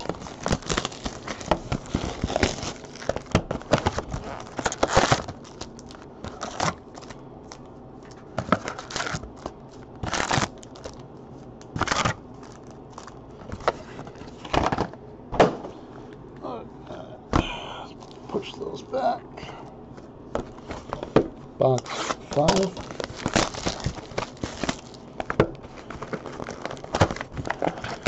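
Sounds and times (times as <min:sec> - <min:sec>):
foil packs crinkling: 0:00.0 - 0:14.7, 0:21.6 - 0:28.0.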